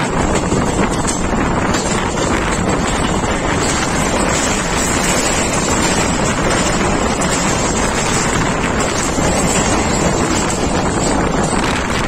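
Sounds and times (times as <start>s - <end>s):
train running rumble: 0.0s - 12.0s
wind rushing over microphone: 0.0s - 12.0s.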